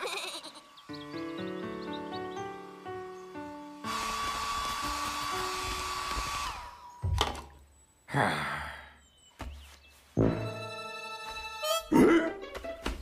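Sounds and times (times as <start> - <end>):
electric motor whir: 2.7 - 7.0.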